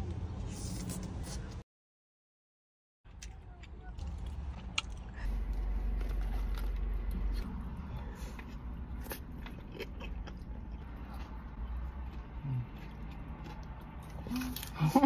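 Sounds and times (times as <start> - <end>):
biting and chewing food: 3.1 - 15.0
low steady rumble: 3.1 - 15.0.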